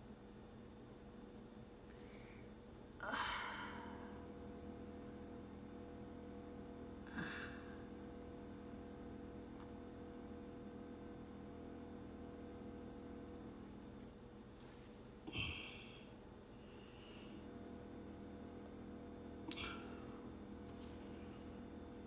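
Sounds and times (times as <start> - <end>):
faint steady hum: 0.0 - 22.0
person sighing: 3.0 - 4.1, 7.1 - 7.8, 15.3 - 16.1.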